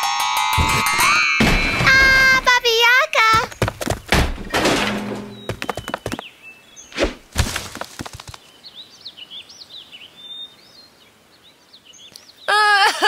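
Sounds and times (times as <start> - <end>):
sharp thumps and clatters: 3.3 - 6.2, 7.3 - 8.4
small birds chirping faintly: 5.3 - 12.8.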